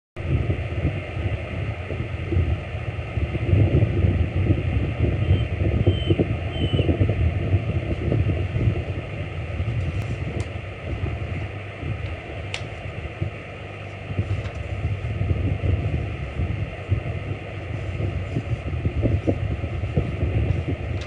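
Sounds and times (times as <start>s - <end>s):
wind buffeting microphone: 0.2s - 21.0s
eagle chirping: 5.2s - 7.0s.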